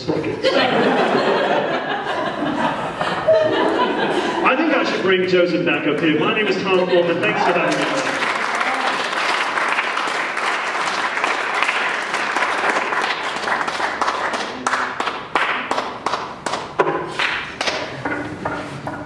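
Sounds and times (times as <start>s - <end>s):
audience applauding: 6.9s - 17.4s.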